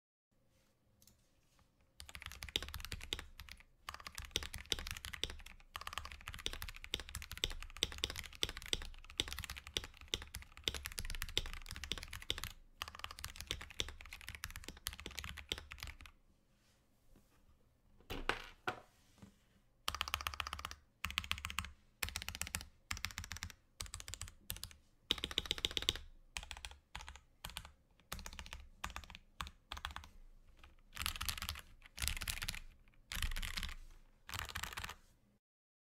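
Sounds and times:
mechanical keyboard typing: 0:02.0 - 0:16.1, 0:19.9 - 0:35.0.

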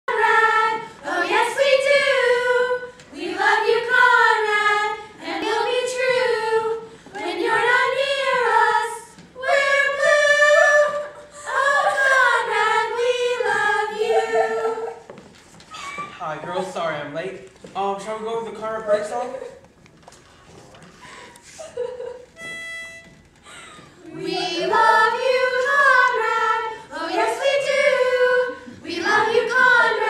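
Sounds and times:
group of girls singing: 0:00.1 - 0:15.1, 0:24.0 - 0:30.0.

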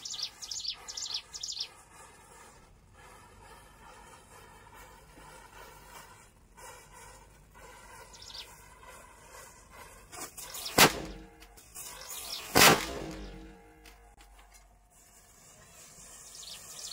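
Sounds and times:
matches burning with hiss: 0:01.2 - 0:13.3
firecracker bang: 0:10.4 - 0:13.8.

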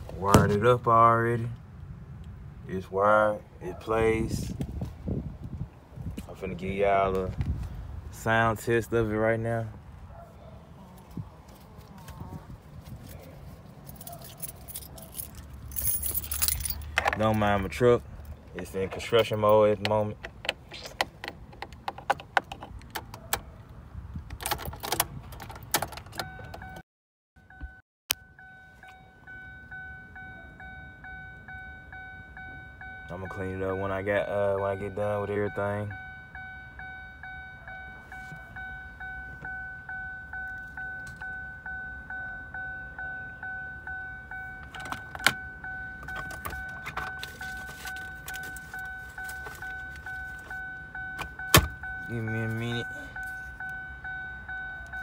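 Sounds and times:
keys jangling on ball chain: 0:13.8 - 0:17.4
car warning chime dinging: 0:26.0 - 0:26.8, 0:27.4 - 0:55.0.

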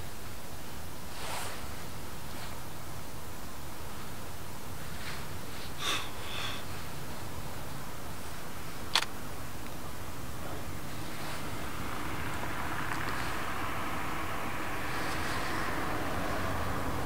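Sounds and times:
breathy noise near microphone: 0:00.0 - 0:17.0
low outdoor background rumble: 0:00.0 - 0:17.0
sharp click: 0:08.9 - 0:09.1.

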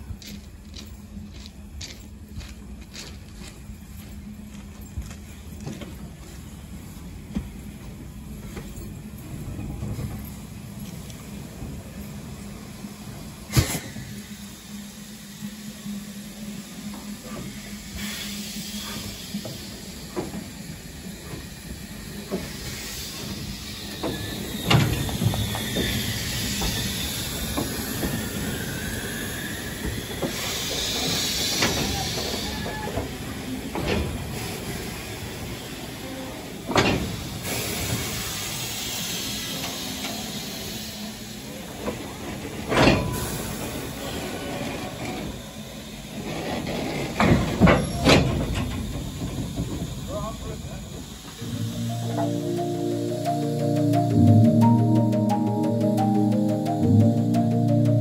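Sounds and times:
steam locomotive running: 0:00.0 - 0:58.0
steam hissing: 0:09.8 - 0:54.0.

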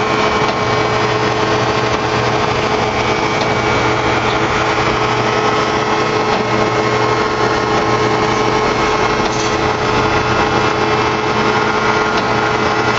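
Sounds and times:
machine hum and whir: 0:00.0 - 0:12.9.

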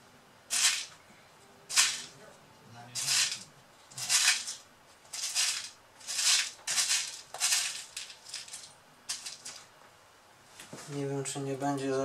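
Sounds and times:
loose screws rattling: 0:00.5 - 0:00.9, 0:03.0 - 0:09.6.

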